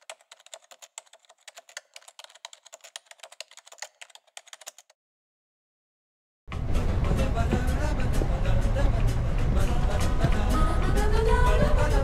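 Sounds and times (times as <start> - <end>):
computer keyboard typing: 0.0 - 5.0.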